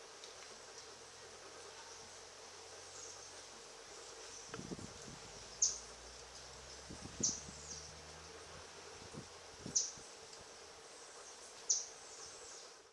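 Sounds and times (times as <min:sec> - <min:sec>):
high insect drone: 0:00.0 - 0:12.9.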